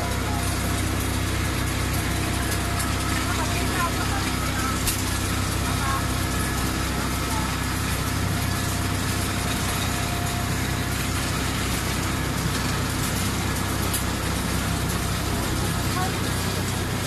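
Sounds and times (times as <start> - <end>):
monorail drive unit humming: 0.0 - 17.0.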